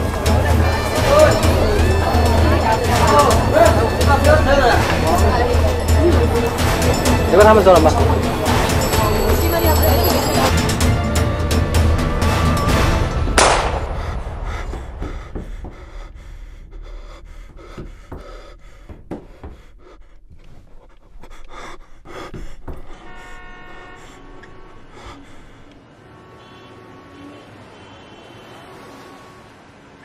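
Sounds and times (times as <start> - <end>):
person panting hard: 13.8 - 25.9
footsteps on stairs: 14.4 - 23.4.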